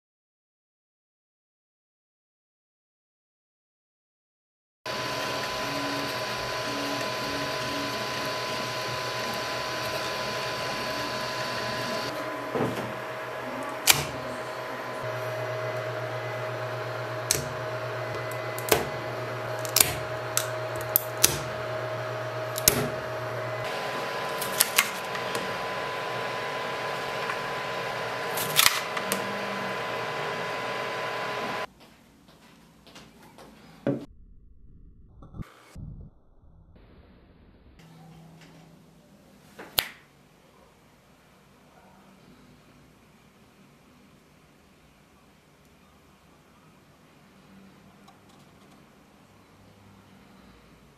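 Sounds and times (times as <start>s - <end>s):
humming tones: 4.9s - 31.7s
three d printer fans whirring: 4.9s - 31.7s.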